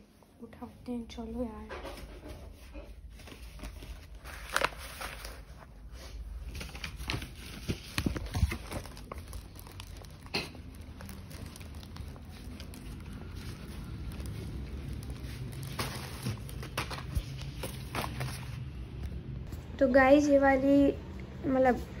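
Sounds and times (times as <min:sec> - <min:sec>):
paper rustling and crinkling: 0:01.8 - 0:19.1.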